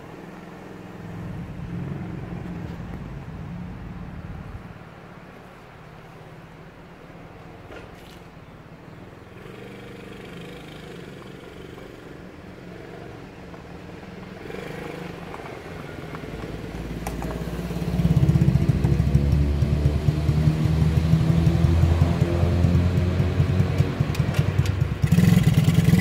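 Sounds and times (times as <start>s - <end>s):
quad bike engine running: 9.3s - 26.0s.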